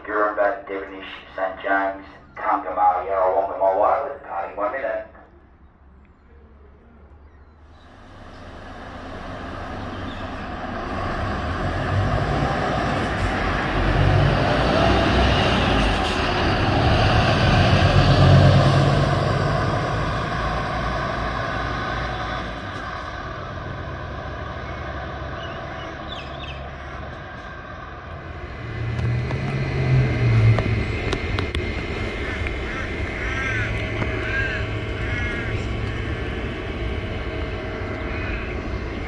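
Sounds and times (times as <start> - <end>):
diesel coach driving away: 7.8 - 39.0.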